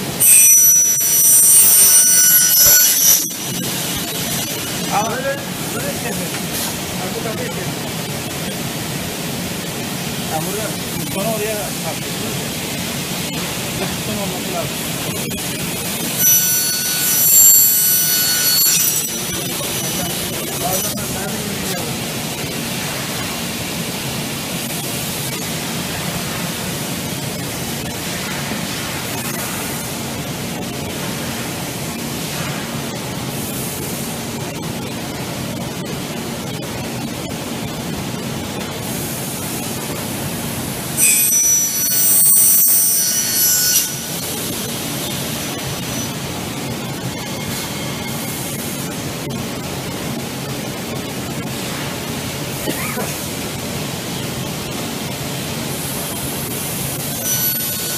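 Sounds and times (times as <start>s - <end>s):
saw running with hum and hiss: 0.0s - 7.8s, 8.6s - 34.2s, 38.8s - 57.9s
circular saw cutting metal: 0.1s - 6.2s, 13.8s - 22.0s, 41.0s - 49.0s, 56.5s - 57.9s.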